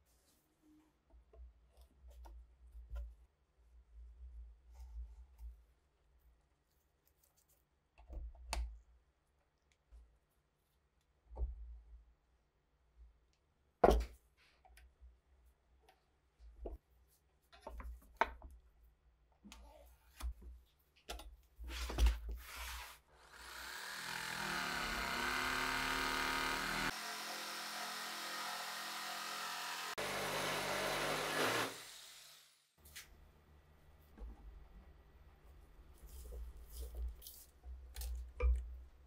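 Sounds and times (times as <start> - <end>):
electric jigsaw cutting wood: 23.2 - 32.7.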